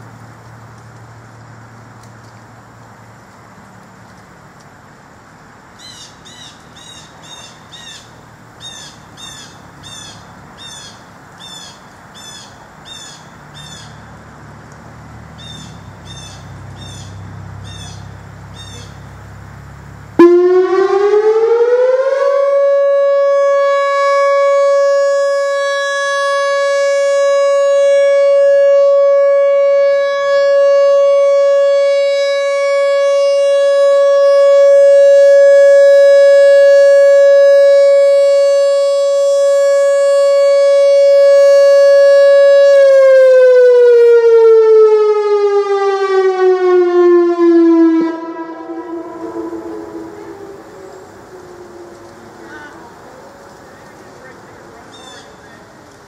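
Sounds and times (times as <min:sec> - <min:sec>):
small bird chirping: 0:05.8 - 0:14.1, 0:15.4 - 0:19.2, 0:54.8 - 0:55.7
tornado siren wailing: 0:20.2 - 0:55.9.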